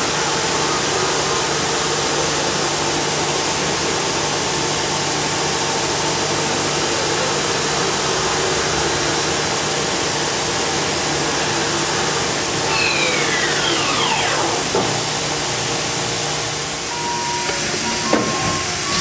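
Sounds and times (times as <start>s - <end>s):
machining center humming: 12.3s - 19.0s
machine whine falling in pitch: 12.6s - 15.4s.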